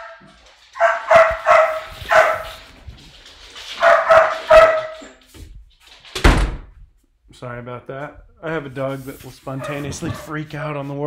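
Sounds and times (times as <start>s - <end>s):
dog barking loudly: 0.0s - 2.7s, 3.7s - 5.1s, 9.5s - 10.8s.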